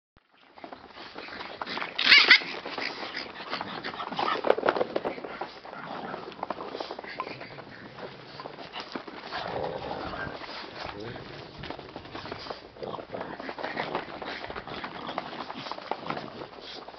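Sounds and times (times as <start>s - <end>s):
paws scrabbling on plastic: 0.2s - 16.9s
puppies growling: 0.4s - 16.9s
puppy high-pitched cry: 2.0s - 2.6s.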